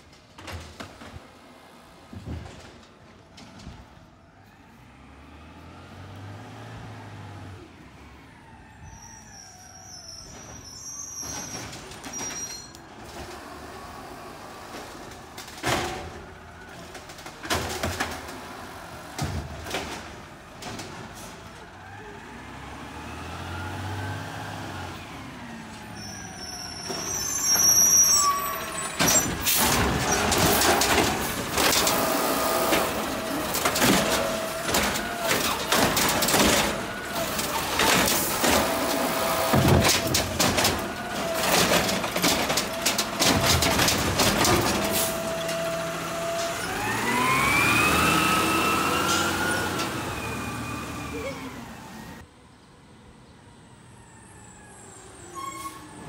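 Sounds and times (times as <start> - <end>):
garbage truck diesel engine: 0.0 - 56.0
air brakes hissing and squealing: 8.7 - 14.7, 25.7 - 39.5, 48.0 - 52.2, 54.1 - 56.0
hydraulic arm lifting cart: 23.6 - 52.2.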